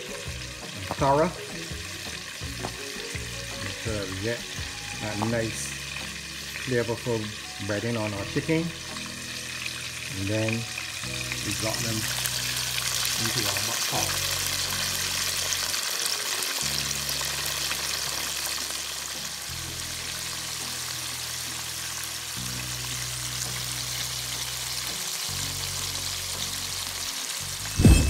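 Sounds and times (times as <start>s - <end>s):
chicken deep-frying in hot oil: 0.0s - 28.0s
soft background music: 0.0s - 28.0s.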